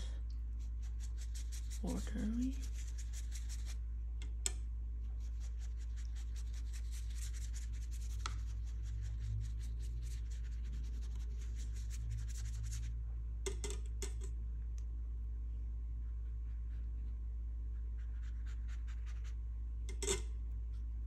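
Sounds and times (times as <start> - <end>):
steady low hum: 0.0 - 21.0
paintbrush scratching on paper: 0.6 - 3.8, 5.1 - 12.9, 17.8 - 19.4.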